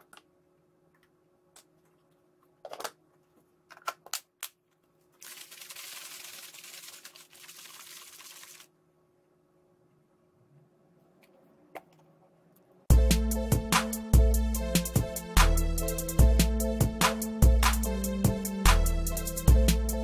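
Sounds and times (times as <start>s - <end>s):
shaker bottle rattling: 5.2s - 8.7s.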